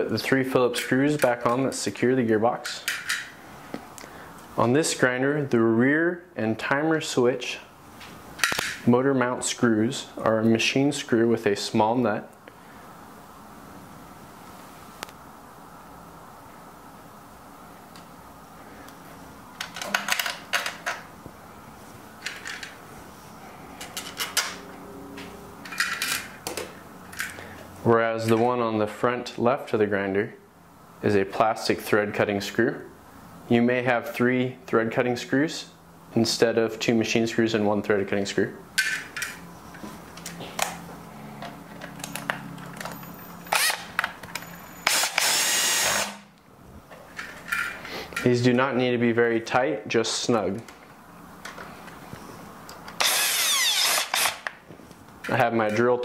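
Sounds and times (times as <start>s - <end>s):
small clicks of parts handled: 22.2s - 22.8s, 23.8s - 24.6s, 25.6s - 27.4s, 41.4s - 43.1s, 46.9s - 48.3s
screws and tools clinking: 41.7s - 46.2s, 52.8s - 54.5s.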